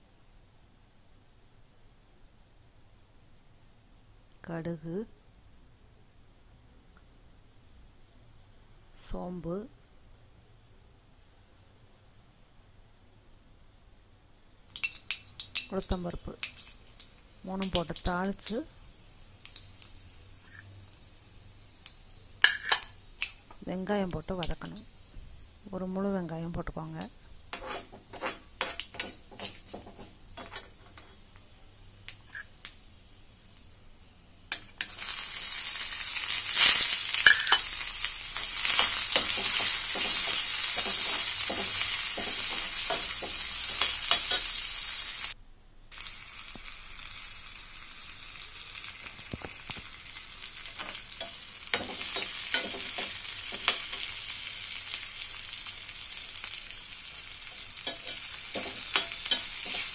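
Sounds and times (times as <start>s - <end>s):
onion sizzling in oil: 14.7s - 59.9s
spatula scraping pan: 27.5s - 31.2s, 38.4s - 44.5s, 57.8s - 59.9s.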